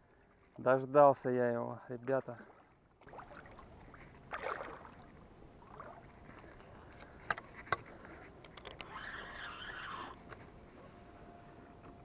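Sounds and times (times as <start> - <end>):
water splashing: 2.0 - 6.1.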